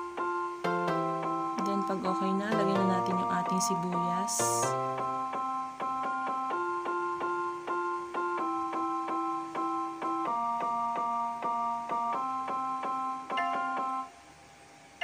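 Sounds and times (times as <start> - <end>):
keyboard piano chords: 0.0 - 15.0.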